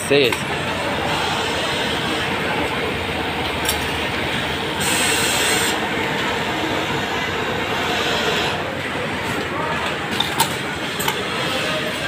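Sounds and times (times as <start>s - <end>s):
workshop machine noise: 0.0s - 12.0s
sewing machine running: 0.7s - 8.6s.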